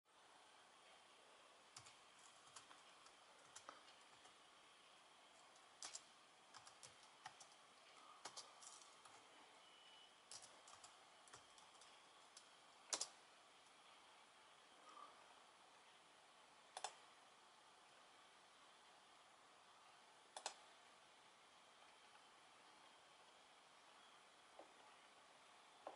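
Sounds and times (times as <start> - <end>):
faint laptop keyboard typing: 1.5 - 13.9, 16.7 - 17.2, 20.2 - 20.8.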